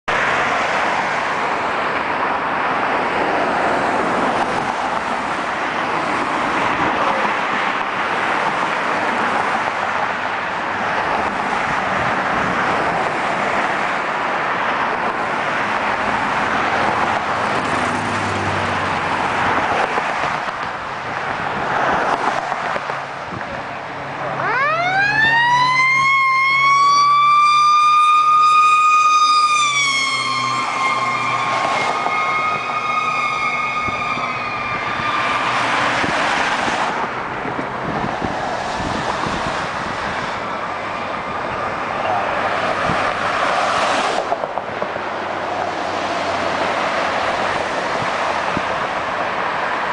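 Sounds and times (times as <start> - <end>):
road traffic rushing: 0.0 - 49.9
fire truck siren wailing: 24.2 - 36.8.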